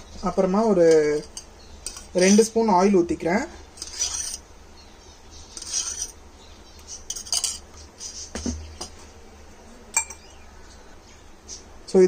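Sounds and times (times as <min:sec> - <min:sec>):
spoon scraping a steel jar: 0:00.9 - 0:02.6, 0:03.8 - 0:04.4, 0:05.5 - 0:06.2, 0:06.8 - 0:07.9.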